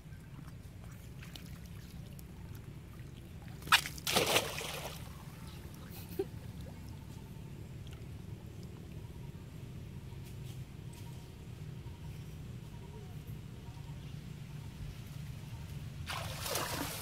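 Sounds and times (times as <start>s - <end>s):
small water sounds of swimming: 0.0s - 9.4s, 16.0s - 17.0s
water sloshing: 0.2s - 5.9s, 16.1s - 17.0s
monkey splashing into water: 3.6s - 5.1s, 16.1s - 17.0s.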